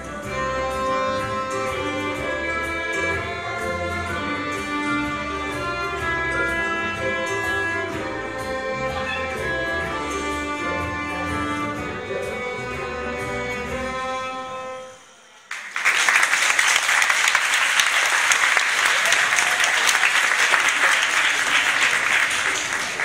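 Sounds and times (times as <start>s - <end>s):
violins and woodwind playing: 0.0s - 15.5s
audience applause: 15.5s - 23.0s.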